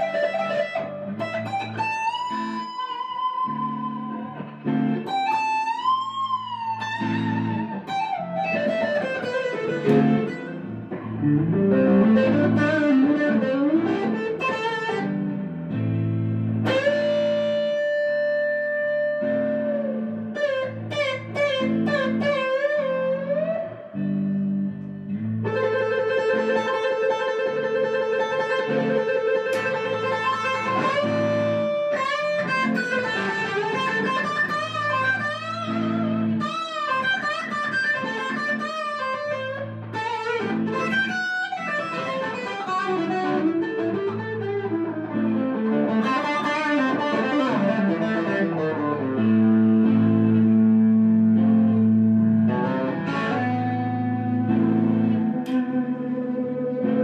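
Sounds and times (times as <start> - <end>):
guitar melody with bending notes: 0.0 - 57.0
low musical accompaniment: 0.0 - 57.0.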